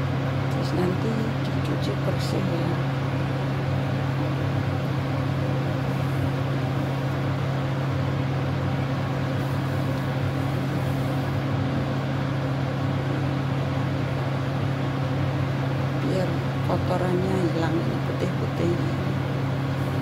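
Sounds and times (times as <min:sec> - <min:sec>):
low mechanical hum: 0:00.0 - 0:20.0
water boiling in a wok: 0:02.8 - 0:16.7.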